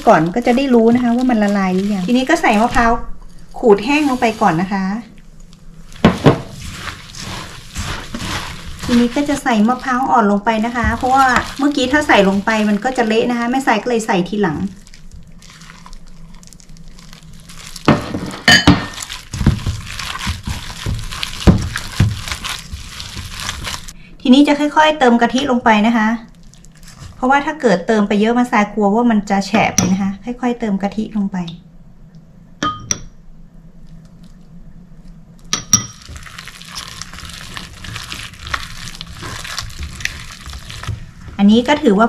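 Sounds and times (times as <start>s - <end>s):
dough squishing: 0.0s - 24.0s, 25.2s - 27.7s, 33.8s - 42.0s
plastic glove rustle: 0.0s - 24.0s, 26.0s - 27.5s, 33.8s - 42.0s
ceramic dish clinking: 32.6s - 33.1s.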